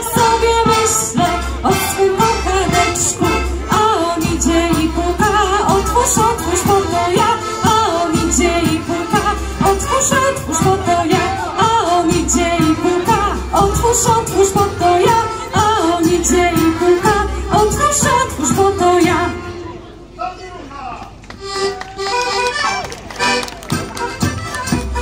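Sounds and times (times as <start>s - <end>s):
voices singing: 0.0s - 19.7s
folk band playing dance tune: 0.0s - 20.2s, 21.1s - 25.0s.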